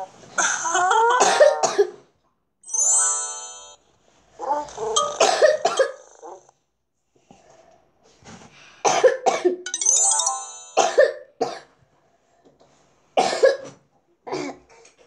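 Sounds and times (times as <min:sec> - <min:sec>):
girl coughing: 0:01.1 - 0:02.0, 0:05.1 - 0:06.1, 0:08.9 - 0:09.6, 0:10.8 - 0:11.7, 0:13.2 - 0:14.8
short musical jingle: 0:09.7 - 0:11.0.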